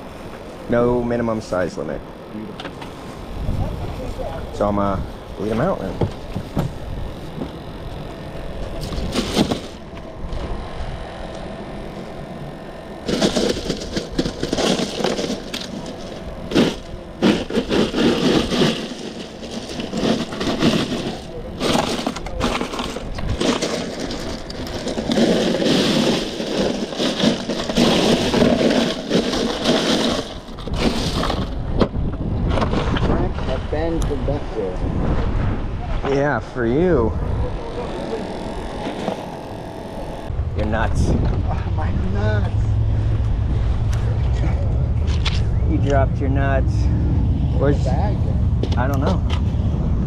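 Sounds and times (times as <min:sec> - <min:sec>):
hand digging through crushed ice: 0:13.1 - 0:31.5.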